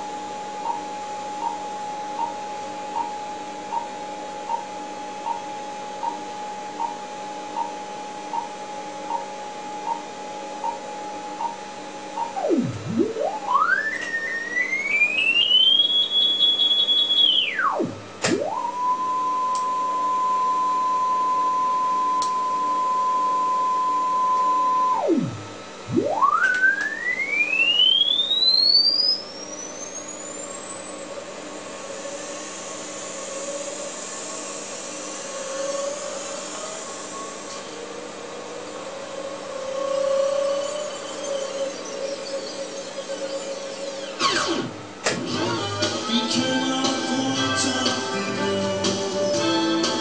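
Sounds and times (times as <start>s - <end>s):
test tone sweeping in pitch: 0.6s - 29.2s.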